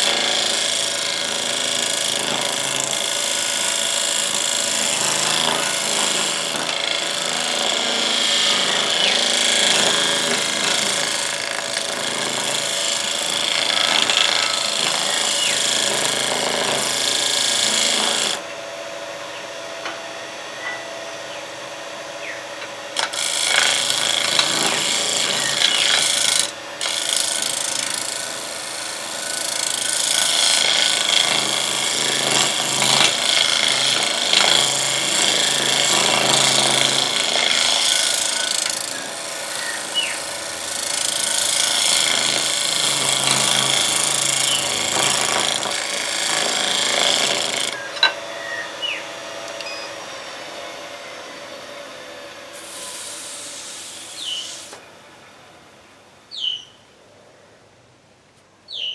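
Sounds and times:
lathe tool scraping wood: 0:00.0 - 0:18.4, 0:22.9 - 0:48.2, 0:52.6 - 0:54.8.

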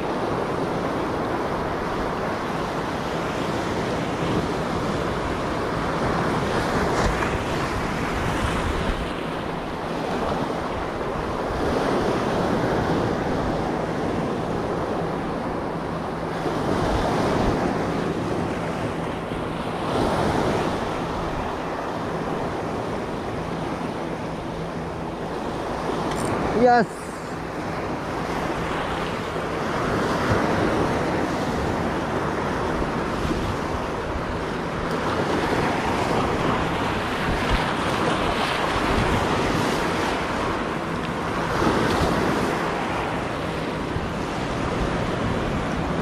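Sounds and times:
wind buffeting microphone: 0:00.0 - 0:46.0
waves breaking on rocks: 0:25.4 - 0:27.5.

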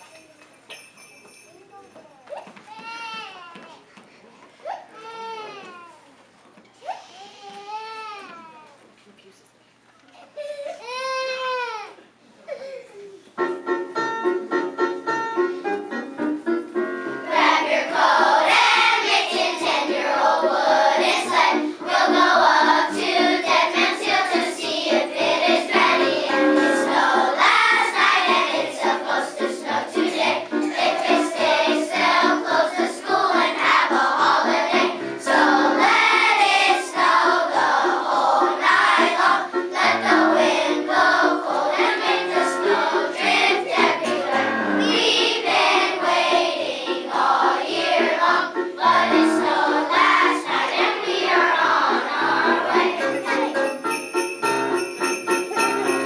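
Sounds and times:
piano accompaniment: 0:13.4 - 0:56.0
children's choir singing: 0:17.2 - 0:53.9.

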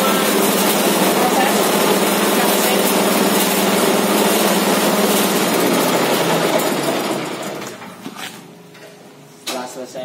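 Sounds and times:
small engine running: 0:00.0 - 0:07.6.

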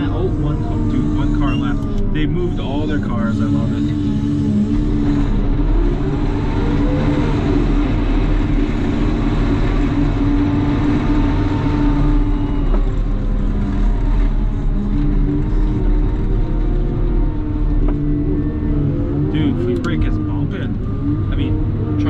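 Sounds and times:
diesel loader engine running: 0:00.0 - 0:22.0.

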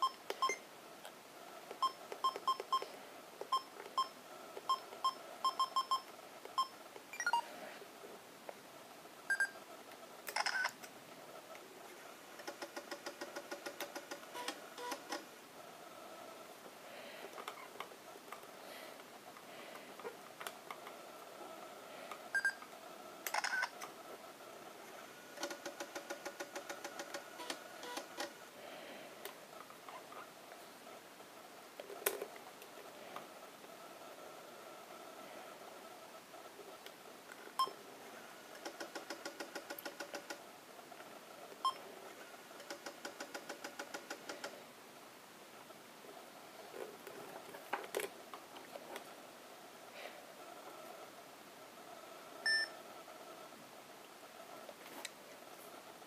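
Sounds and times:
camera electronic beep: 0:04.7 - 0:07.4.

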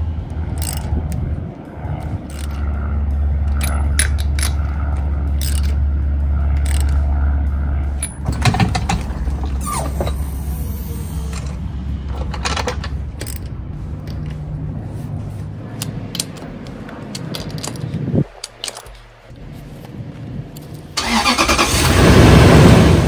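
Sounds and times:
steady low hum: 0:00.0 - 0:21.0
ratchet wrench clicking on nuts: 0:00.2 - 0:01.3, 0:02.0 - 0:02.6, 0:03.5 - 0:05.8, 0:06.6 - 0:07.1, 0:10.1 - 0:14.4.

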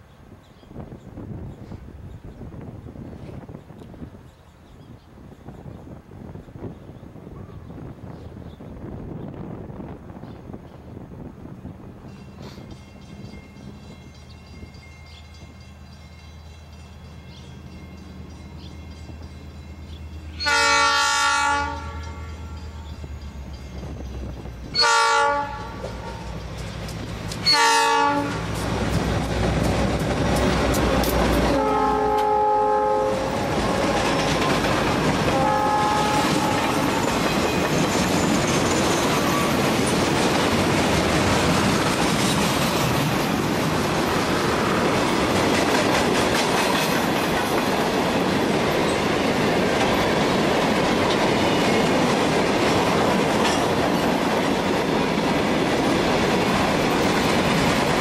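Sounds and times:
locomotive horn blasts: 0:20.4 - 0:22.8, 0:24.7 - 0:26.4, 0:27.4 - 0:28.5, 0:30.9 - 0:34.2, 0:35.2 - 0:37.6
locomotive engines: 0:21.7 - 0:58.0.

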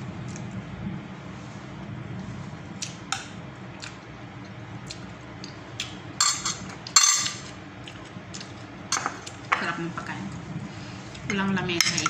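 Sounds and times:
metal spoon clinking on plates: 0:06.2 - 0:07.5.

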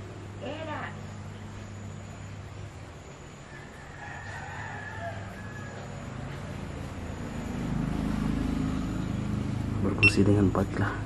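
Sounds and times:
rooster crowing: 0:03.4 - 0:09.1.

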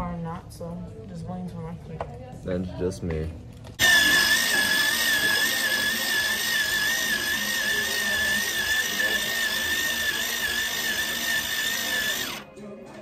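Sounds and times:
electric pencil sharpener whine: 0:03.8 - 0:12.5.

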